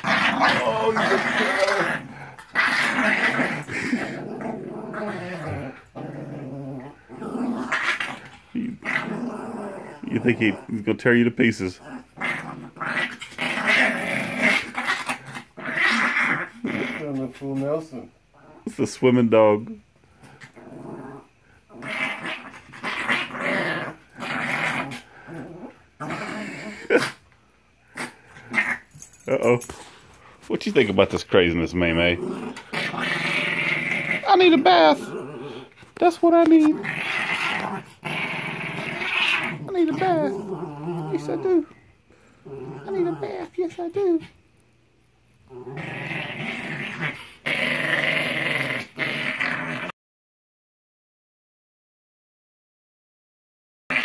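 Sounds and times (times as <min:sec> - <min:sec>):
small dog growling: 0:00.0 - 0:18.8, 0:19.6 - 0:29.0, 0:30.9 - 0:44.4, 0:45.4 - 0:50.0.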